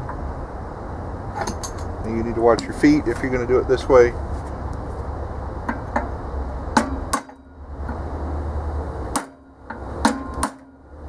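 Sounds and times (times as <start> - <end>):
hammer striking steel punch: 6.8 - 7.4, 9.1 - 10.8.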